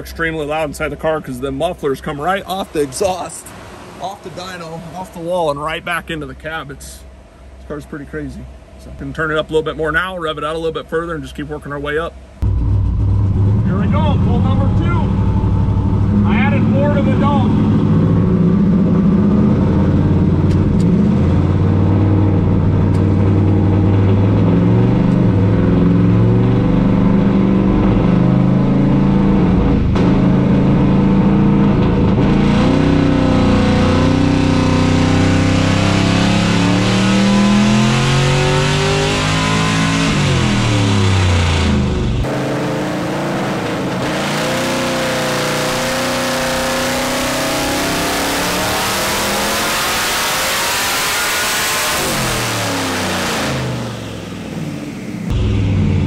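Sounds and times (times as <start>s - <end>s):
engine revving under load: 12.4s - 56.0s.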